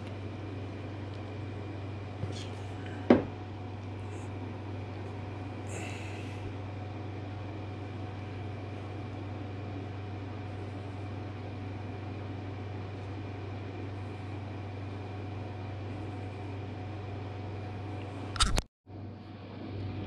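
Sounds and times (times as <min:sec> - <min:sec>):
shop equipment humming: 0:00.0 - 0:20.0.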